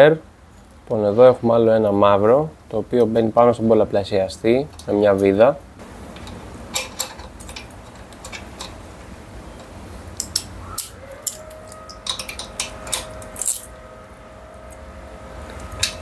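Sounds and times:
screwdriver clicking on metal: 10.2 - 13.7.

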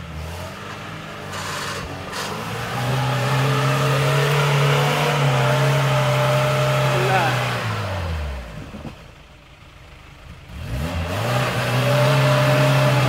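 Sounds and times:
car engine running under load: 0.0 - 13.0.

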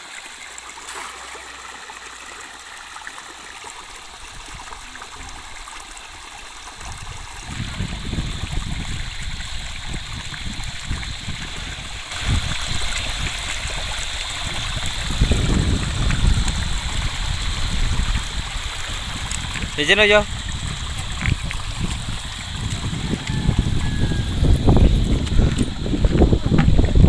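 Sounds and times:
river water trickling: 0.0 - 27.0.

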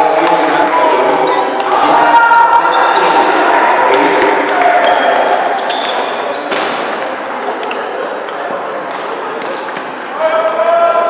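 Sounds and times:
voices echoing in a hall: 0.0 - 11.0
table tennis balls clicking: 4.8 - 10.1.

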